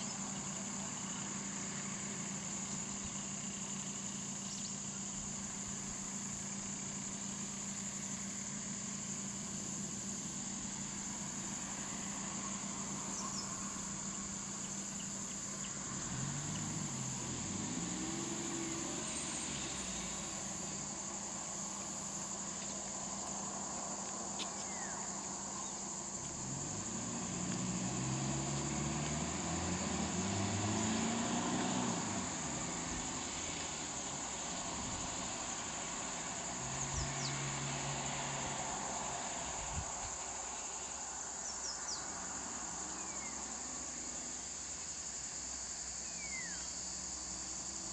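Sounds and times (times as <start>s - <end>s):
van engines idling: 0.0s - 17.7s, 19.1s - 27.5s
high-pitched insect chorus: 0.0s - 47.9s.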